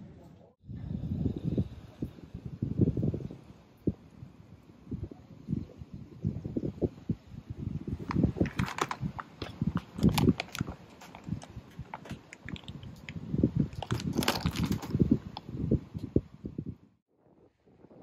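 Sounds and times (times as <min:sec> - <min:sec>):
wind buffeting microphone: 0:00.6 - 0:18.0
snack bag crinkling: 0:08.0 - 0:15.0.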